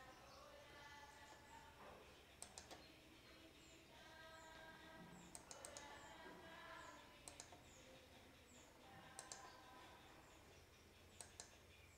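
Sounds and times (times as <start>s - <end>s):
faint clicks: 2.3s - 2.9s, 5.1s - 9.9s, 11.1s - 11.8s.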